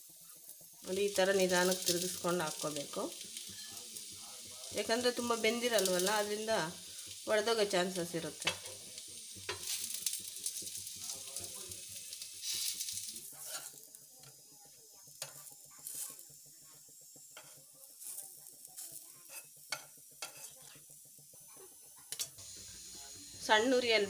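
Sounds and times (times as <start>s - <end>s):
snacks sizzling on a griddle: 0.0s - 24.0s
metal spatula scraping griddle: 12.2s - 14.3s, 15.2s - 16.2s, 17.4s - 20.9s.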